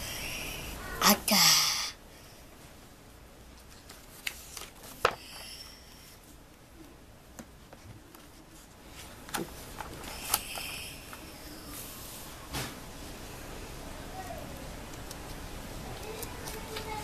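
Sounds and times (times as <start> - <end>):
paper pages rustling: 3.5 - 5.5, 7.6 - 12.2, 14.9 - 17.0
pages tapping and slapping: 3.6 - 5.5, 9.0 - 11.3, 14.9 - 17.0.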